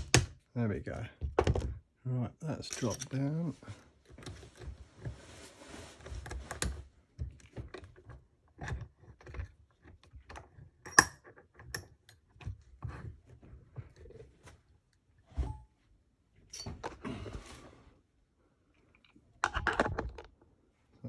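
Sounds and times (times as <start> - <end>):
lock pick clicking and scraping: 7.4 - 13.0.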